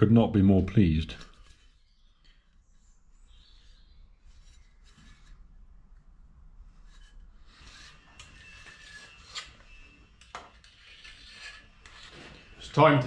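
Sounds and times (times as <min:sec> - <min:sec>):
metal pulley rubbing and scraping: 0:01.3 - 0:05.4, 0:06.7 - 0:12.7.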